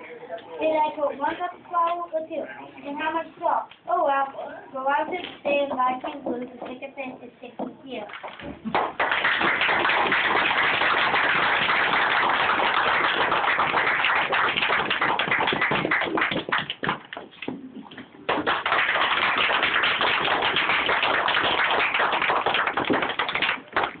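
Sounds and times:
audience applauding: 8.6 - 17.1, 18.3 - 24.0.

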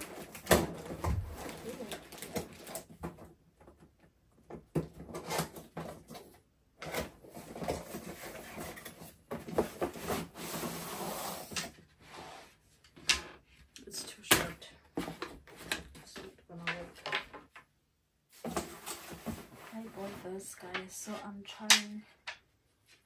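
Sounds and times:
cardboard scraping and rustling: 6.9 - 12.6, 18.3 - 20.4.

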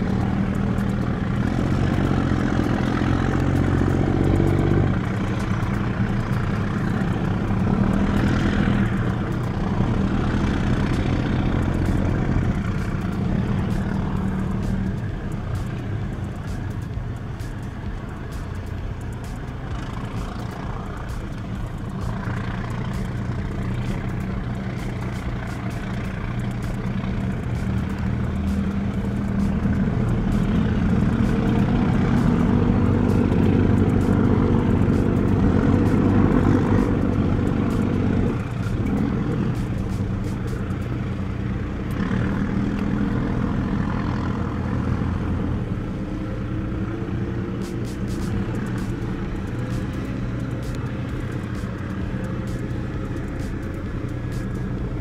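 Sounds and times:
ferry engines droning: 0.0 - 55.0.

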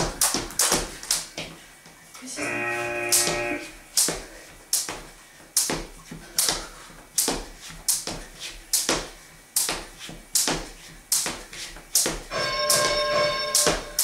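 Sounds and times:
skipping rope slapping the floor: 0.0 - 1.6, 3.1 - 14.0.

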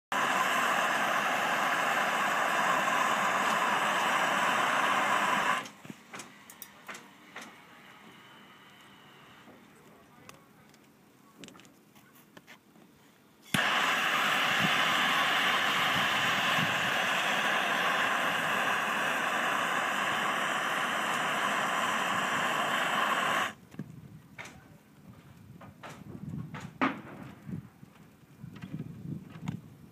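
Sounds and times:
torch flame hissing: 0.1 - 6.6, 13.5 - 23.6
gas torch lighting click: 0.2 - 7.6, 13.5 - 23.6.

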